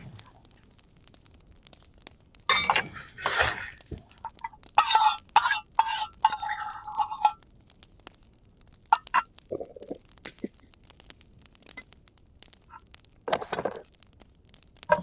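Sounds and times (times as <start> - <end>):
metal utensil scraping pot: 2.5 - 7.4, 8.9 - 9.3.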